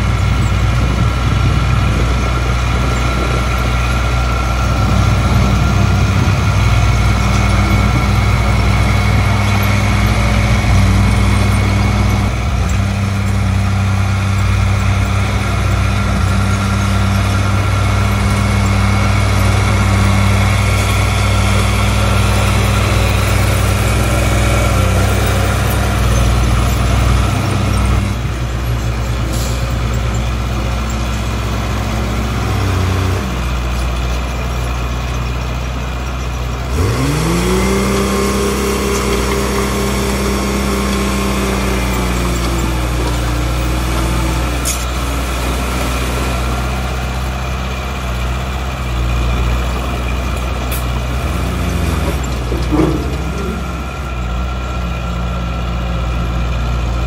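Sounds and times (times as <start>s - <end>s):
heavy diesel engine running: 0.0s - 57.0s
engine revving up: 36.6s - 48.9s.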